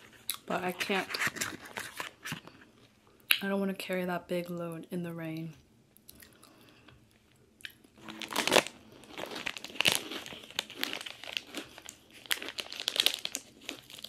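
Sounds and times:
plastic wrapper crinkling: 8.0 - 14.0.

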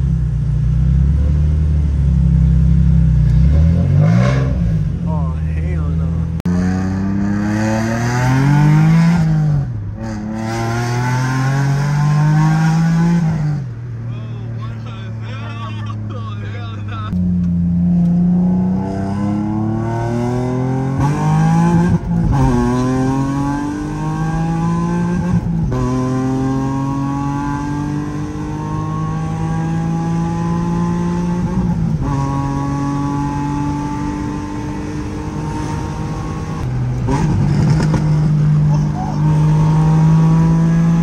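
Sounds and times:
car engine accelerating through gears: 0.7 - 5.0, 6.2 - 13.8, 16.8 - 41.0.

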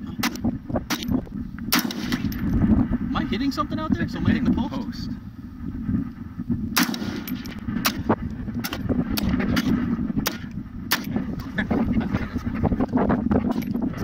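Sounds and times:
rifle shots: 0.2 - 2.5, 6.8 - 11.3.

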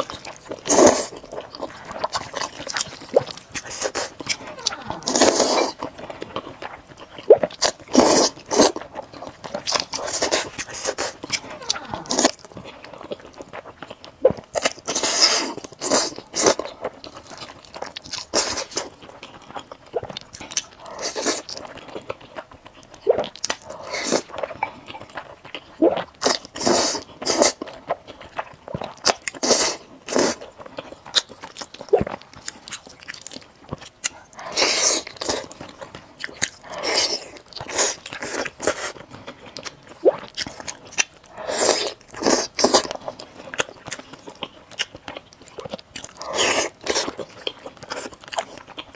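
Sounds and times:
chewing: 0.0 - 48.9
slurping noodles: 0.6 - 2.5, 3.1 - 5.8, 7.9 - 8.9, 14.8 - 16.6, 25.8 - 27.6, 34.4 - 35.4, 41.3 - 43.0.

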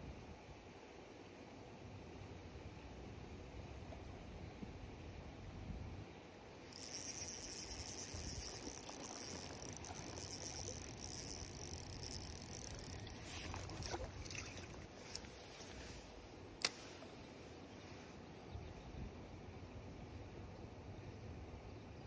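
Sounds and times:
fishing reel whirring: 6.7 - 15.3
light clicks: 6.8 - 15.3.

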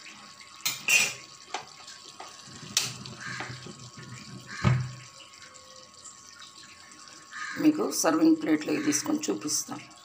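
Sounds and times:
pan and utensils clicking: 0.6 - 3.5.

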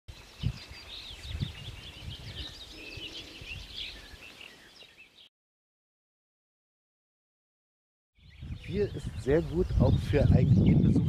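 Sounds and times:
songbirds chirping and trilling: 0.1 - 5.3, 8.2 - 11.0.

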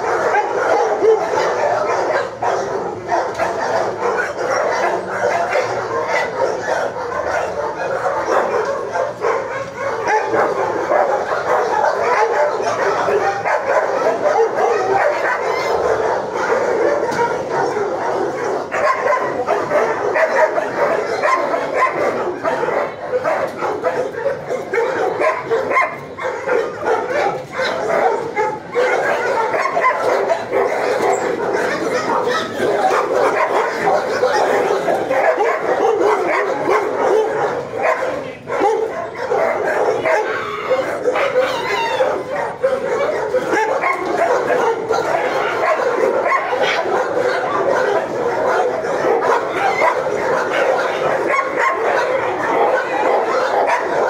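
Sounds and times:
dogs barking and yelping: 0.0 - 54.0.

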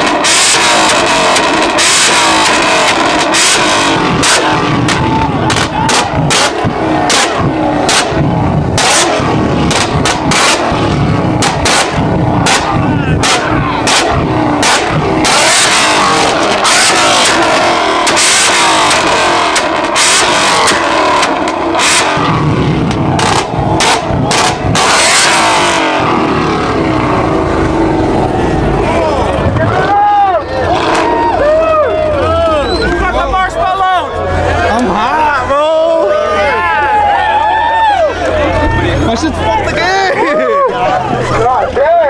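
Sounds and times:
exhaust pops and bangs: 0.0 - 28.0, 28.8 - 30.0
car engine revving: 0.0 - 42.0.

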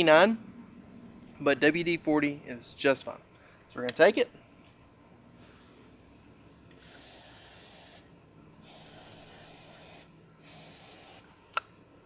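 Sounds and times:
aerosol can spraying: 6.8 - 11.3.

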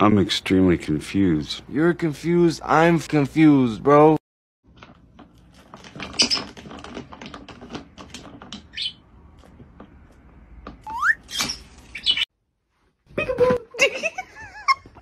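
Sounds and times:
bird squeaks: 8.7 - 9.0, 10.9 - 12.3.

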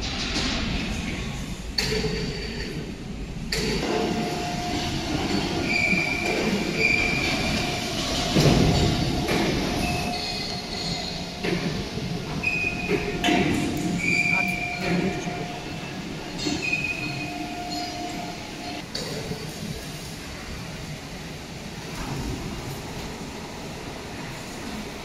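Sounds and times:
machinery rumble with whine: 0.0 - 25.0
high metallic squeals: 4.1 - 11.5, 12.3 - 18.8.

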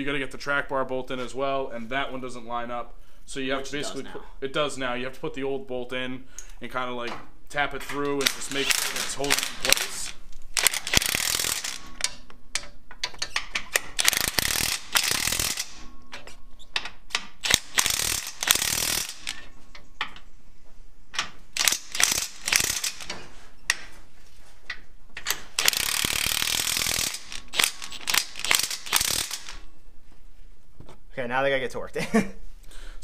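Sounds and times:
impact wrench hammering: 8.0 - 15.9, 16.8 - 19.4, 21.2 - 23.8, 25.2 - 29.7
short rattles and clicks: 8.1 - 15.8, 17.1 - 19.6, 21.2 - 23.2, 25.2 - 29.6.

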